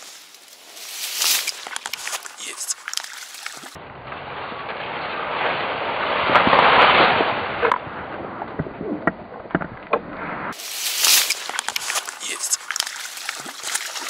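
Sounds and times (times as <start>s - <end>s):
water splashing from thrashing fish: 0.0s - 3.8s, 10.6s - 14.0s
sharp water slaps: 0.9s - 3.8s, 10.6s - 14.0s.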